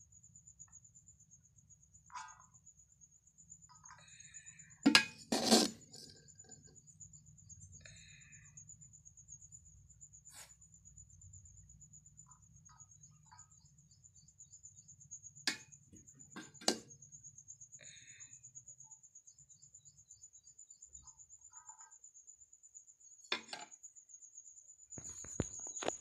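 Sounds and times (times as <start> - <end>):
cricket trilling: 0.0 - 26.0.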